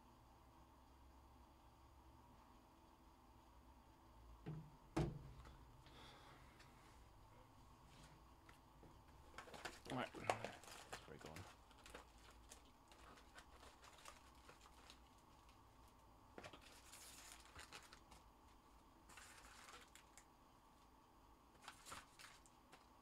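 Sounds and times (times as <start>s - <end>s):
trading cards rustling and clicking: 9.3s - 15.1s.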